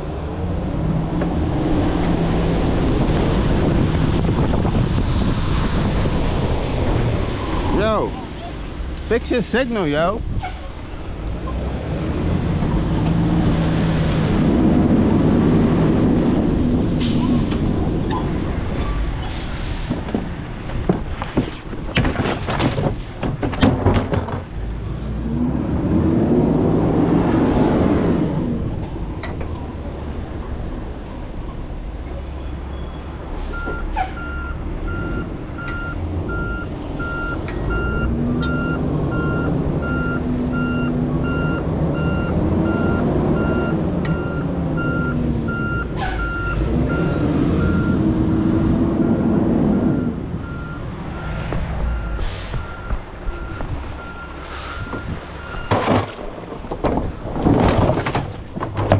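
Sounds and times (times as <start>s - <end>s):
clattering and banging: 18.7s - 24.8s, 54.8s - 58.9s
air brakes hissing: 45.9s - 46.4s, 52.0s - 52.8s, 54.3s - 55.1s.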